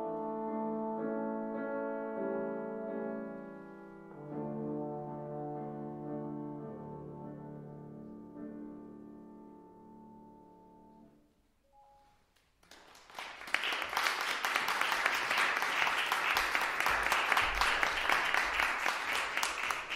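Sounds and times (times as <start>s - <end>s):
trombone and piano chord: 4.2s - 8.5s
audience applause: 12.6s - 19.9s.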